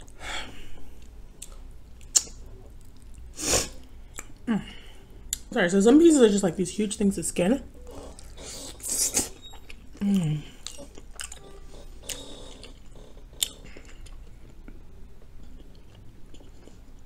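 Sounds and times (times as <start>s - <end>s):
person chewing food: 0.0s - 4.5s, 5.2s - 5.5s, 7.7s - 17.0s
wet mouth clicks: 1.4s - 3.1s, 13.4s - 14.3s.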